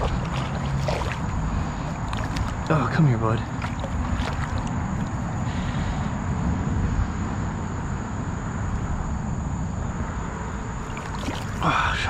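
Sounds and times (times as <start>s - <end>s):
fish splashing at surface: 0.0s - 2.6s, 3.5s - 5.2s, 10.8s - 11.8s
creek water: 0.0s - 6.3s, 10.5s - 12.0s
wind rumble on microphone: 0.0s - 12.0s.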